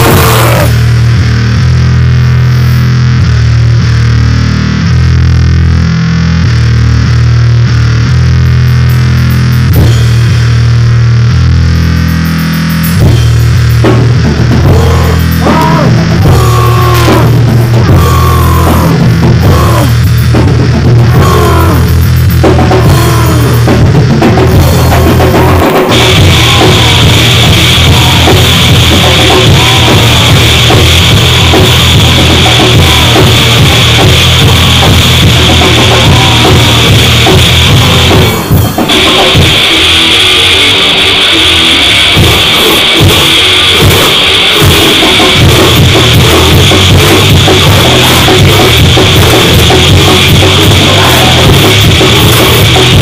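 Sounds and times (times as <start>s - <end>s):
harsh high hiss: 0.0s - 1.5s, 24.5s - 53.0s
distorted noise music with drums: 0.0s - 53.0s.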